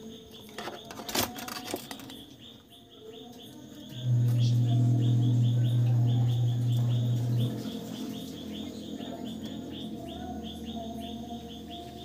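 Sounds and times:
faint bird chirps: 0:00.0 - 0:12.0
loud steady low hum: 0:03.9 - 0:12.0.

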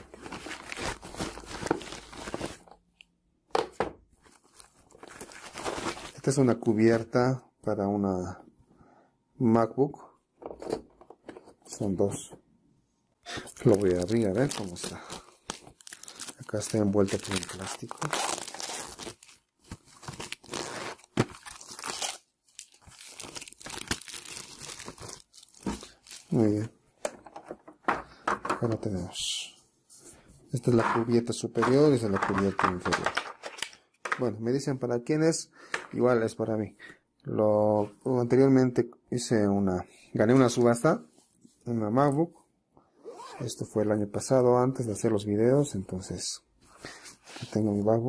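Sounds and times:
plastic bag crinkling: 0:13.5 - 0:26.6.

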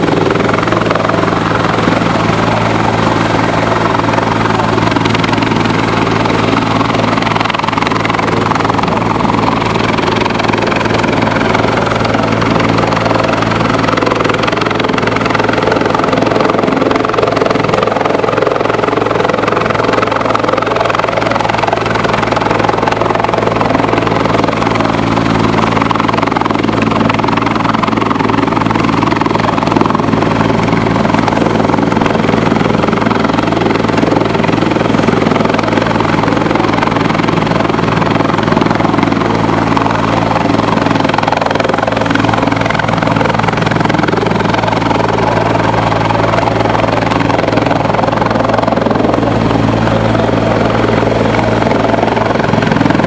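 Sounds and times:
helicopter rotor and turbine: 0:00.0 - 0:53.0.

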